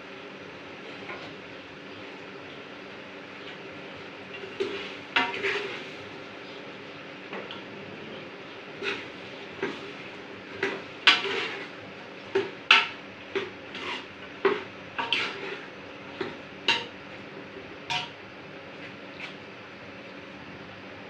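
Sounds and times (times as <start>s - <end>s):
metal spoon scraping metal pot: 11.1s - 11.6s, 12.7s - 15.7s.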